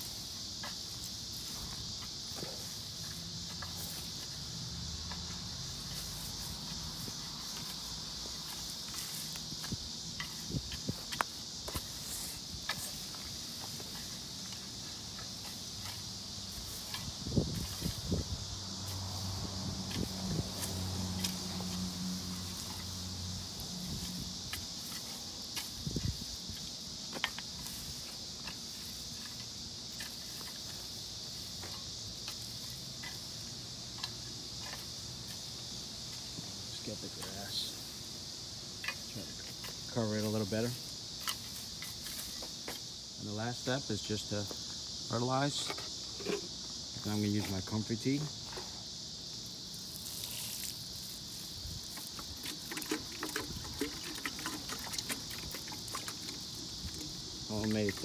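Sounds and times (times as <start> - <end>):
insects buzzing: 0.0 - 58.0
rake scraping soil and grass: 0.0 - 58.0
water sprinkling on dry straw: 18.8 - 31.6, 49.7 - 58.0.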